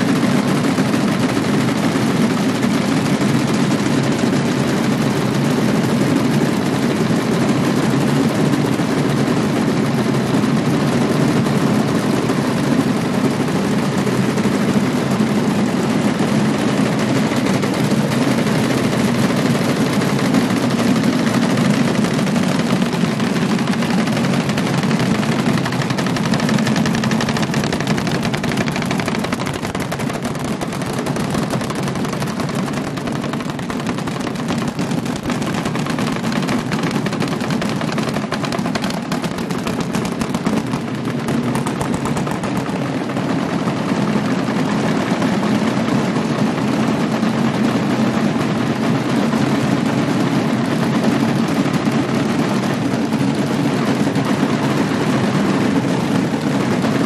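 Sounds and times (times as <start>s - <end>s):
drummers beating wooden boxes: 7.4s - 45.2s.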